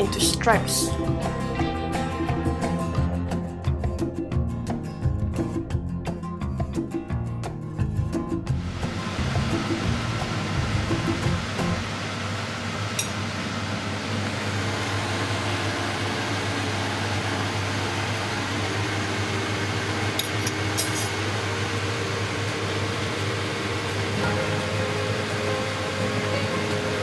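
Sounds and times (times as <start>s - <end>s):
hot oil sizzling: 8.5s - 27.0s.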